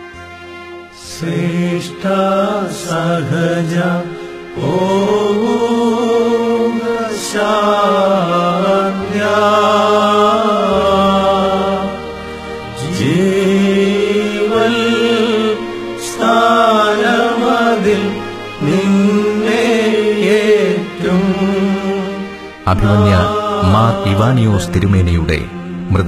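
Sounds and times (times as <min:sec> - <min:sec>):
solo voice chant-like singing: 0:01.0 - 0:12.1, 0:12.7 - 0:26.0
sustained low accompanying notes: 0:21.0 - 0:26.0.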